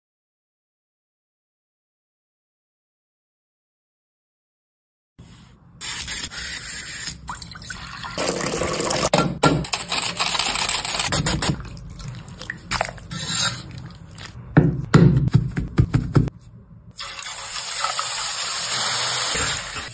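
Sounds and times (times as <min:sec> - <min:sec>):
water splashing and sloshing: 0:11.1 - 0:14.4
potato scraped across mandoline: 0:13.1 - 0:14.4.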